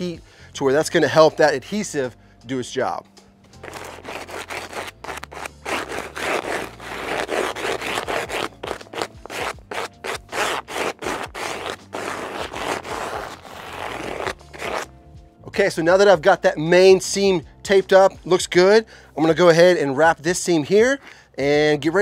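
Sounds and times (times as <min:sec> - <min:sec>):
squeegee scraping over foil tape: 0:03.6 - 0:14.9.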